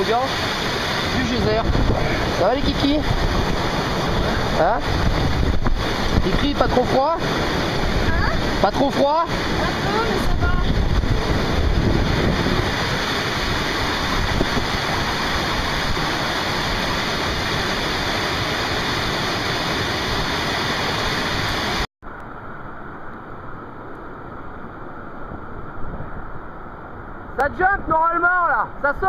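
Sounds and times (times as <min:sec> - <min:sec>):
whitewater rushing: 0:00.0 - 0:21.9
dull rushing water: 0:00.0 - 0:29.0.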